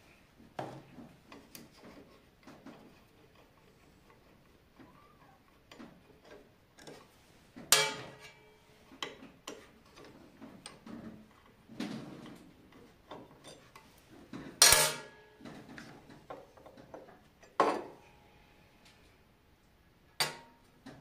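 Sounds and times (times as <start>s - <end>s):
ringing metal clanks: 7.7s - 8.4s.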